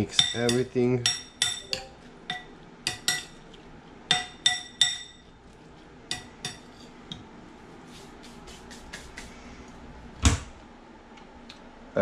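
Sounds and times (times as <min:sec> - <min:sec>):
spoon clinking against glass bowl: 0:00.1 - 0:03.4, 0:04.1 - 0:05.3.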